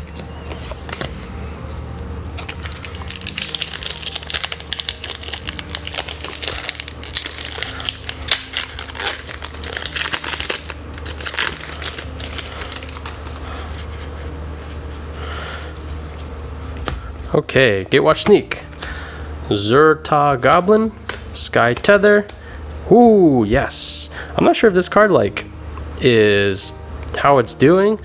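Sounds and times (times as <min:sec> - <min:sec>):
foil wrapper crinkling: 0:02.4 - 0:14.7.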